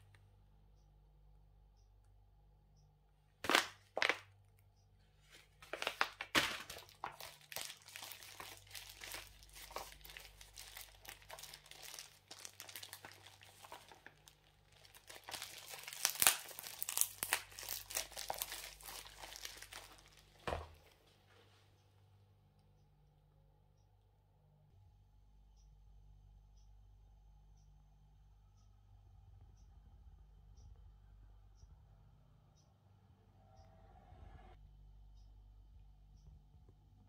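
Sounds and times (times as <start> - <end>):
packaging crinkling: 3.4 - 4.2, 5.3 - 21.0.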